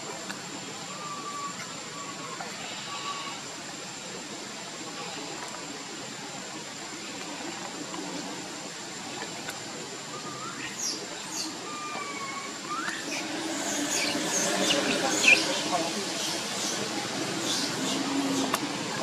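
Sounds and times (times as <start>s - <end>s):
outdoor hiss: 0.0s - 19.0s
bird chirps and whistled calls: 10.1s - 16.8s.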